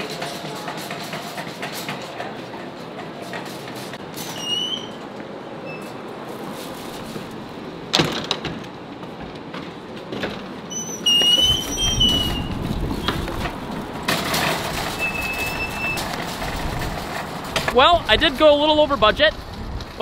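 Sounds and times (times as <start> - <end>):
shopping cart rolling and rattling: 0.0 - 5.0, 5.8 - 8.7, 9.6 - 20.0
cart clank: 0.0 - 20.0
short high squeaks: 4.2 - 6.1, 10.7 - 13.2, 14.9 - 16.1.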